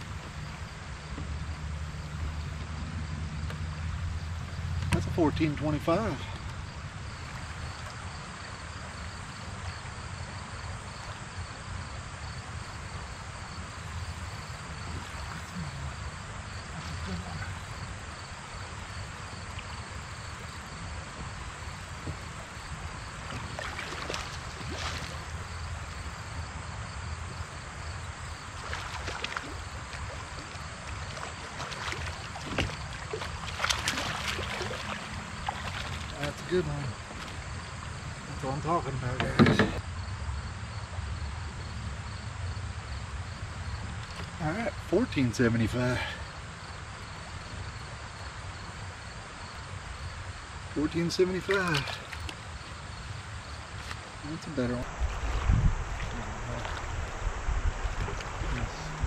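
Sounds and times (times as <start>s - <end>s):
wind: 0.0s - 59.0s
river water rushing: 3.8s - 39.0s, 49.8s - 59.0s
low rumble: 54.8s - 59.0s.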